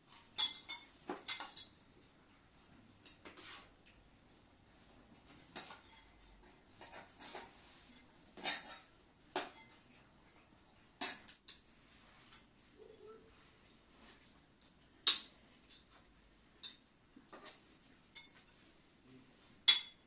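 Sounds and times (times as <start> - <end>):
spoons clinking against plates: 0.0 - 1.9, 5.0 - 11.7, 15.0 - 18.8, 19.6 - 20.0.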